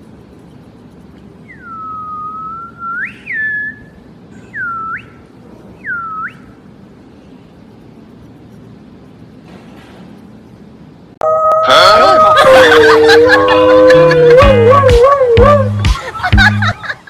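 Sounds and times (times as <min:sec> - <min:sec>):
person whistling: 0:01.5 - 0:05.2.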